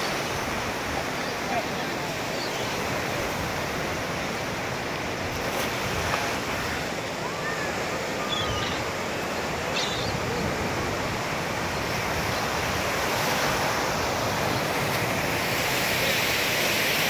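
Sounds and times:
ocean surf breaking: 0.0s - 17.0s
gull calls: 7.4s - 10.5s.

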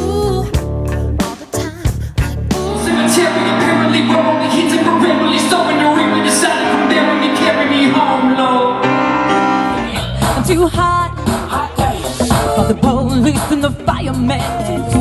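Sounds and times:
person singing: 1.2s - 15.0s
grand piano chords: 2.7s - 10.0s.

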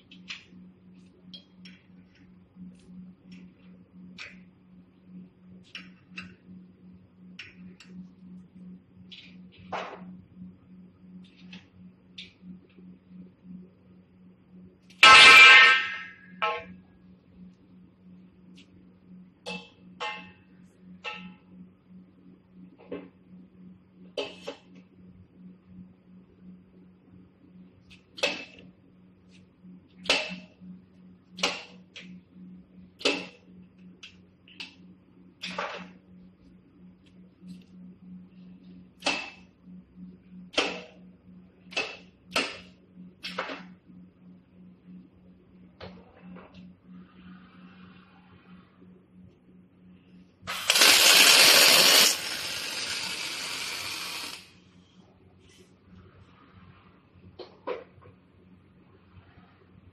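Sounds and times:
low machine hum: 0.0s - 59.9s
welding arc hissing: 50.5s - 54.5s.

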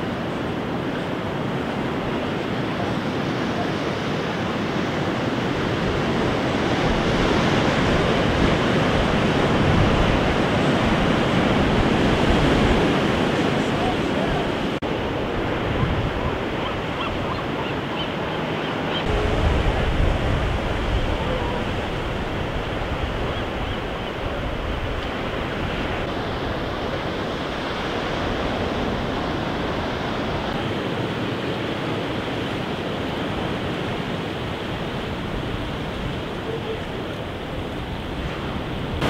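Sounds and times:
surf breaking on rocks: 19.0s - 36.4s.

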